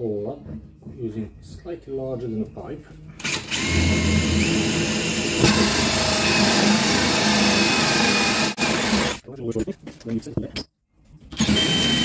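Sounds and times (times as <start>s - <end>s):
drill motor whine with grinding: 3.2s - 9.2s, 11.4s - 12.0s.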